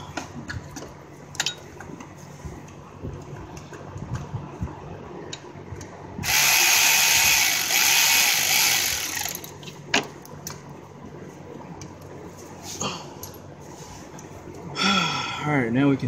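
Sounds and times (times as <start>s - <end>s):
electric ratchet running: 6.2s - 9.6s.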